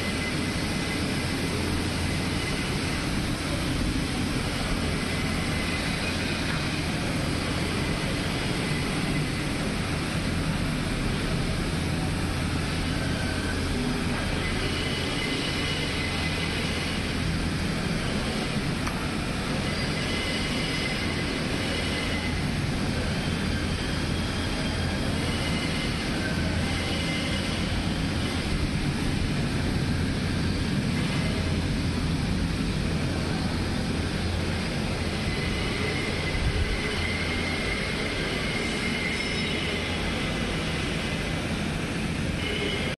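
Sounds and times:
inflation blower humming and hissing: 0.0 - 42.9.

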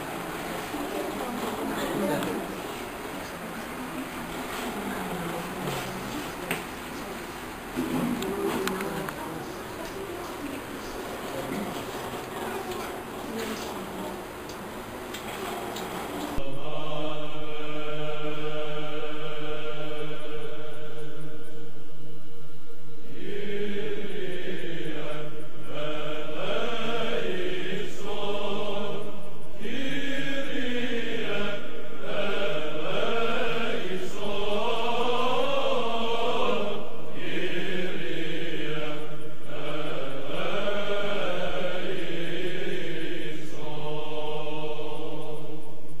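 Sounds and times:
steady held drone: 0.0 - 46.0
chanted sung melody: 16.4 - 21.9, 23.0 - 46.0.

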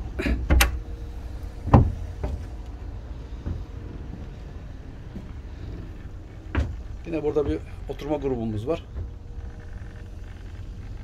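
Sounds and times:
steady low rumble: 0.0 - 11.0
knocks on boat hatches: 1.7 - 2.5.

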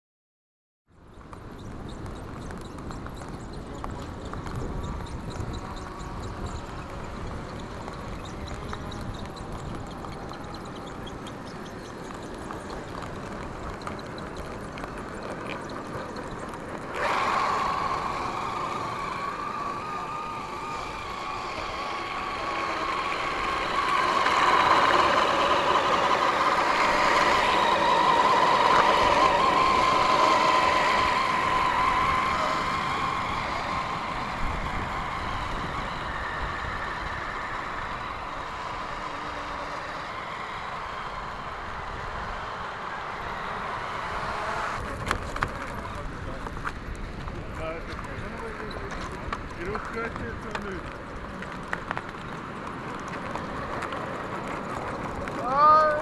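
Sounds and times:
electric motor whining: 1.1 - 56.0.

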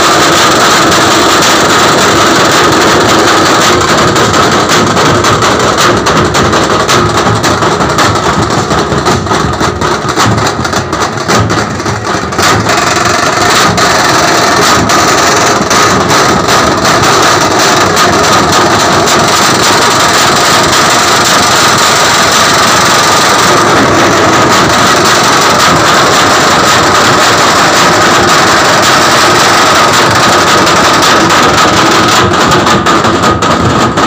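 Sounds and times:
drum band beating drums: 0.0 - 34.0.

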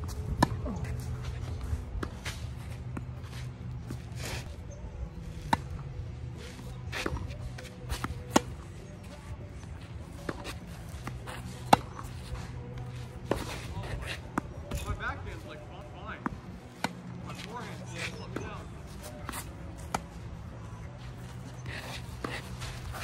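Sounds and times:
shoes scuffing on clay court: 0.0 - 23.0.

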